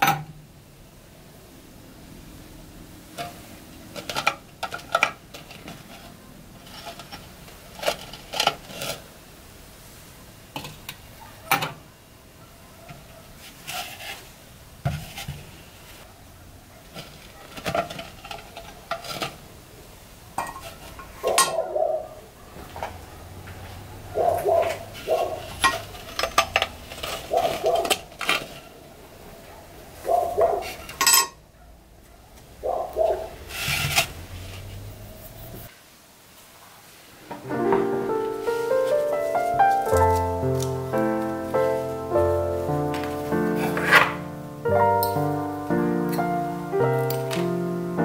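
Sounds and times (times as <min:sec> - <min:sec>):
ceramic pieces clinking and knocking: 0:20.4 - 0:21.6, 0:25.4 - 0:28.6, 0:30.8 - 0:31.4.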